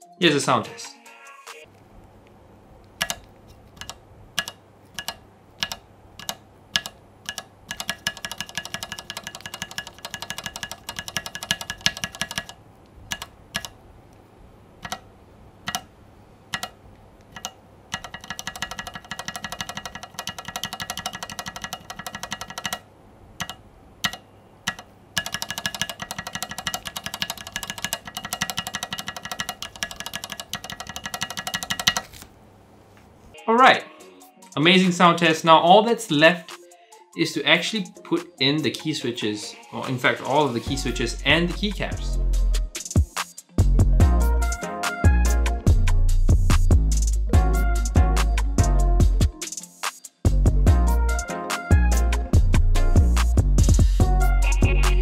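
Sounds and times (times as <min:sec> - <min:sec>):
keyboard keys clicking: 0:02.9 - 0:13.8, 0:14.8 - 0:15.9, 0:16.5 - 0:22.8, 0:23.4 - 0:32.2
rapid key presses ringing: 0:03.0 - 0:13.8, 0:14.8 - 0:15.9, 0:16.5 - 0:32.2.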